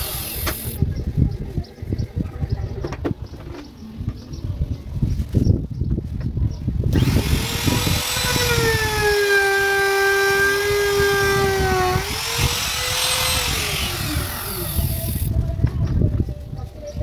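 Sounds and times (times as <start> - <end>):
trim router motor whine: 7.0 - 15.3.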